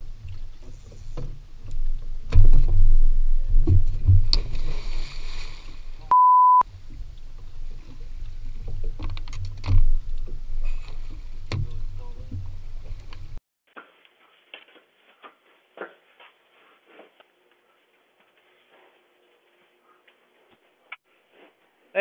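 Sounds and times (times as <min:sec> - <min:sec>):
heavy thumps and knocks: 0:02.3 - 0:04.4
water splash: 0:03.6 - 0:06.1
censor bleep: 0:06.1 - 0:06.6.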